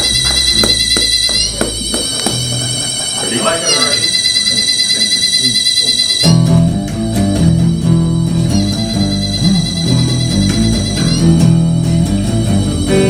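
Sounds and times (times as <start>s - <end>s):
bass guitar: 0.0s - 3.0s, 6.2s - 13.0s
harmonica: 0.0s - 6.7s, 7.4s - 13.0s
electric guitar: 6.2s - 13.0s.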